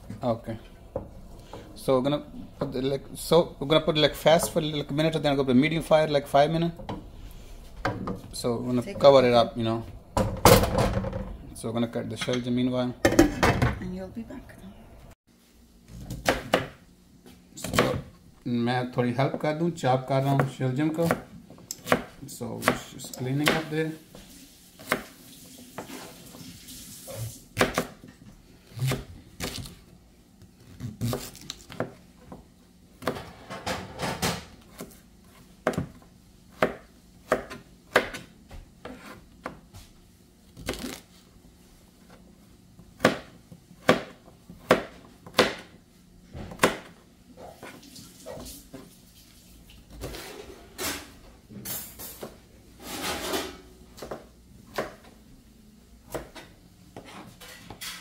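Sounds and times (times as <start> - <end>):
knife chopping on plastic board: 16.1 - 16.8, 20.3 - 23.7, 27.6 - 28.1, 34.6 - 39.6, 43.0 - 45.8, 46.4 - 47.0.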